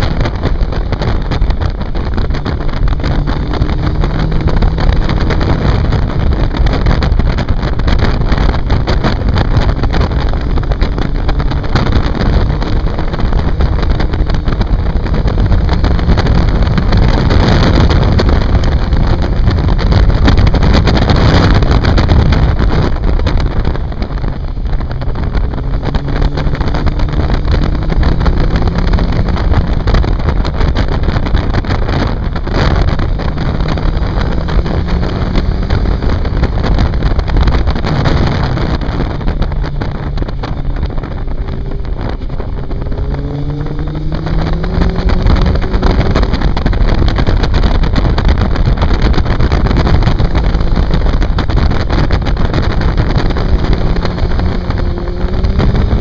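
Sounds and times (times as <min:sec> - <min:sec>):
motorcycle engine accelerating: 0:00.0 - 0:56.0
wind rushing on microphone: 0:00.0 - 0:56.0.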